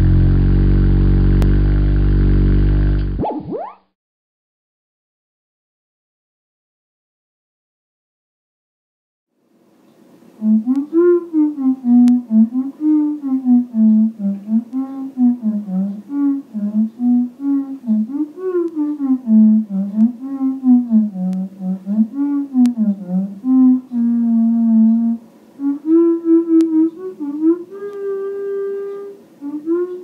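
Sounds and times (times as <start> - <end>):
theremin playing slow melody: 10.4 - 30.0.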